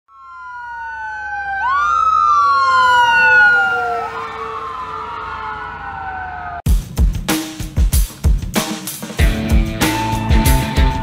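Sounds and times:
ambulance siren wailing: 0.1 - 6.7.

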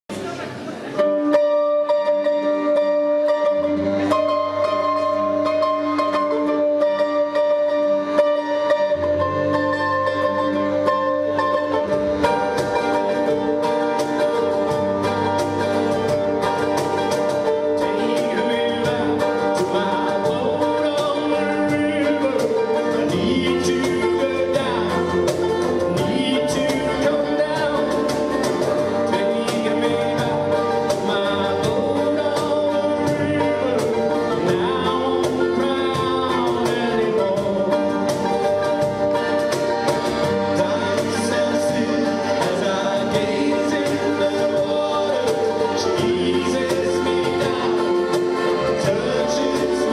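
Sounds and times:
accordion: 0.1 - 49.9
acoustic guitar: 0.1 - 49.9
cajon beat: 0.1 - 49.9
mandolin: 0.1 - 49.9
person singing: 1.0 - 49.9.

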